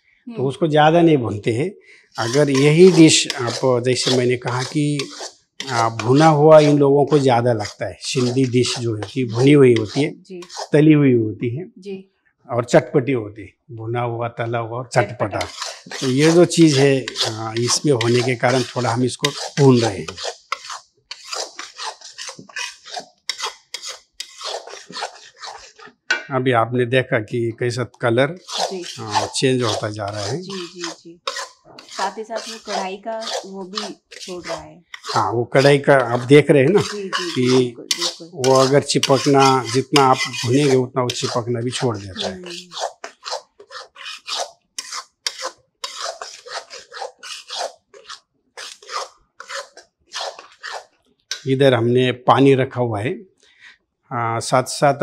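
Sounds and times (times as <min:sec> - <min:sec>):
metal spatula scraping a metal pan: 0:02.2 - 0:10.8, 0:15.0 - 0:26.1, 0:28.4 - 0:51.6.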